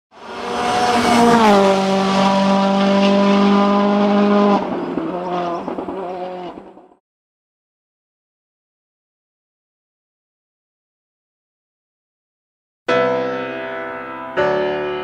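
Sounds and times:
racing car engine at high revs: 0.1 - 6.8.

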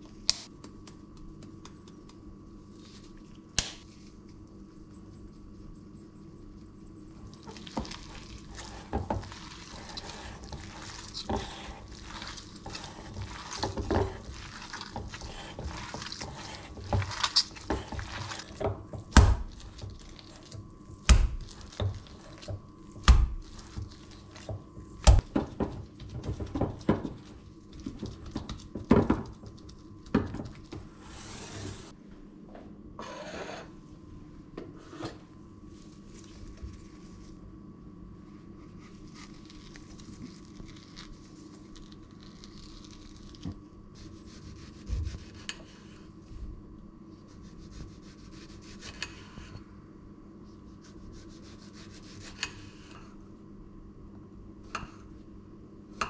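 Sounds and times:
hands kneading meat: 0.0 - 30.8, 38.5 - 45.5, 46.4 - 49.4, 50.4 - 53.0.

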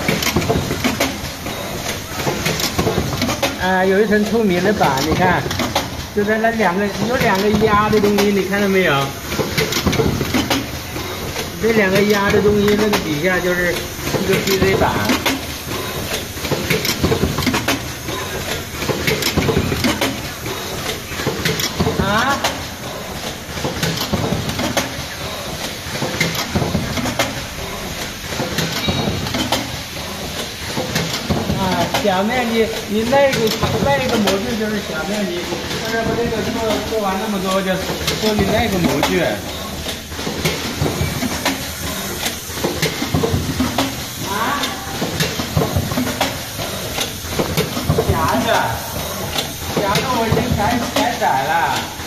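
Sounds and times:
stamping machine clattering: 0.0 - 52.0.

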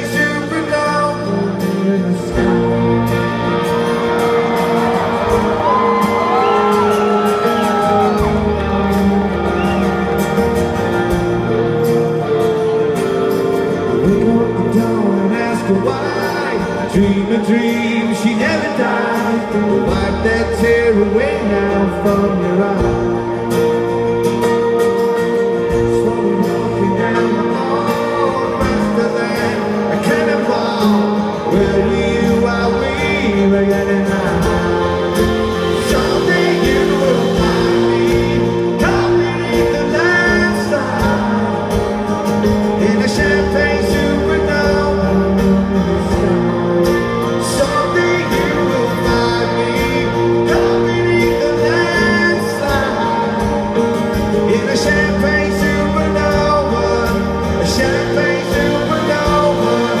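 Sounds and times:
electric guitar: 0.0 - 60.0
male lead vocal: 0.0 - 60.0
strummed acoustic guitar: 0.0 - 60.0.

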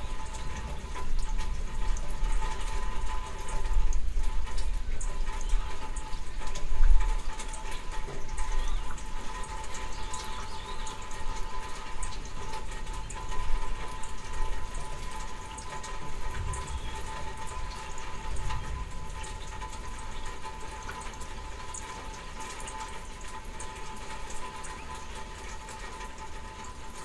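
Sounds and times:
steady rain: 0.0 - 27.0
thunder rumbles: 16.2 - 20.2.

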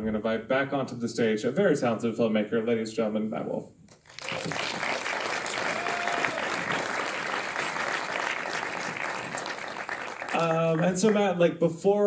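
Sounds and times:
audience applauding: 4.0 - 11.3.

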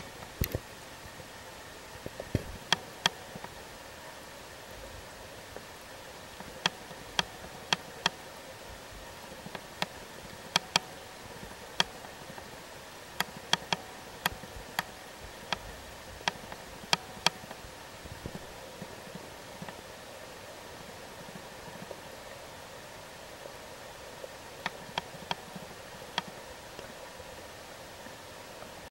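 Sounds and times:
underwater river flowing over gravel: 0.0 - 28.9
sharp clicks: 10.5 - 11.0, 11.8 - 12.5, 13.2 - 15.7.

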